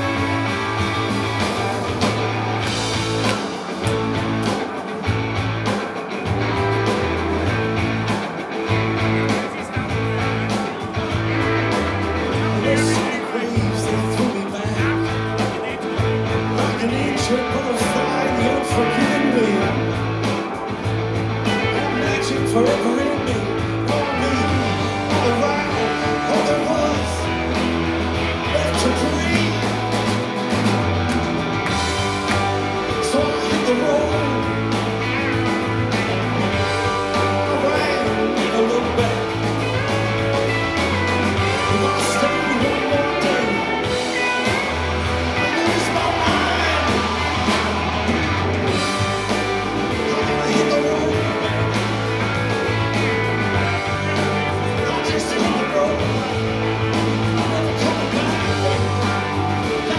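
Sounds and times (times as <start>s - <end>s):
bass line: 0.0s - 59.9s
drums: 0.0s - 59.9s
electric guitars: 0.0s - 59.9s
person singing: 12.4s - 20.0s, 21.4s - 27.3s, 28.4s - 29.8s, 32.9s - 34.6s, 36.8s - 40.3s, 41.3s - 52.0s, 53.0s - 56.4s, 57.2s - 59.9s.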